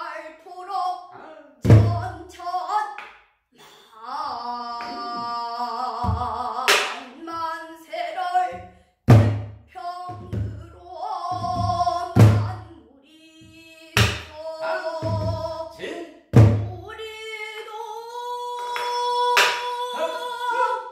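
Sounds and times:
woman singing long wavering notes: 0:09.7 - 0:15.8, 0:16.8 - 0:20.9.

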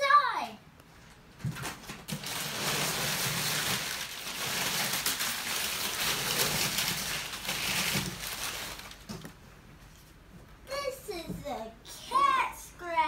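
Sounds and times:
packing paper rustling: 0:01.0 - 0:09.4.

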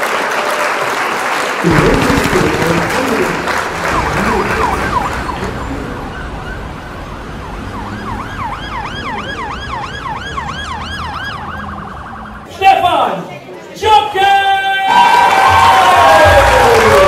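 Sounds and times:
siren sweeping up and down: 0:03.8 - 0:12.5.

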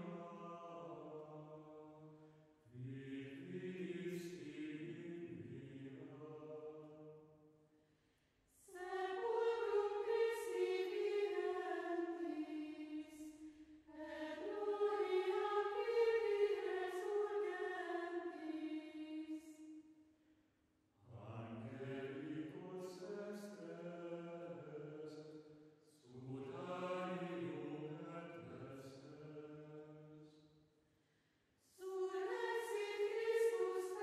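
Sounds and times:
choir singing held phrases: 0:02.8 - 0:06.8, 0:08.6 - 0:13.3, 0:13.9 - 0:19.4, 0:31.8 - 0:34.0.

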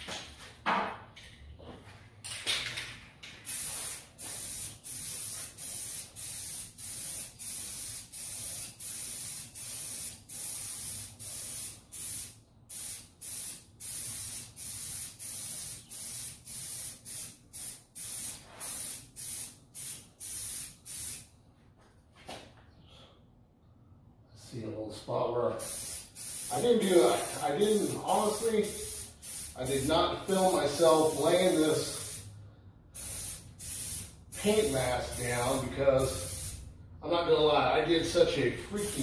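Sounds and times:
spray paint can hissing: 0:03.4 - 0:21.3, 0:25.6 - 0:32.3, 0:33.0 - 0:36.6, 0:38.7 - 0:39.0.

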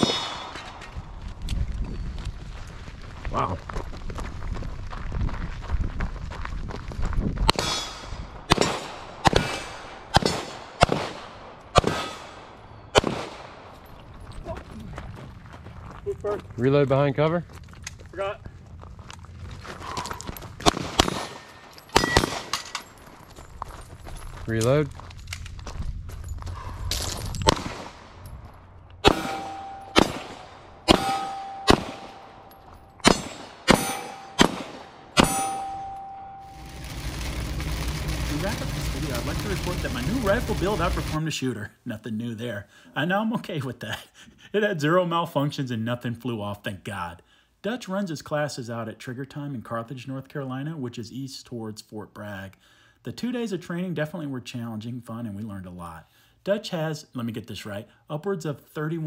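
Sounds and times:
gunshots with echo: 0:00.0 - 0:00.8, 0:07.5 - 0:13.7, 0:20.6 - 0:22.6, 0:29.0 - 0:36.6
handgun shots: 0:20.6 - 0:22.7, 0:29.0 - 0:32.4, 0:33.0 - 0:35.7
steel target ringing: 0:29.0 - 0:36.9.

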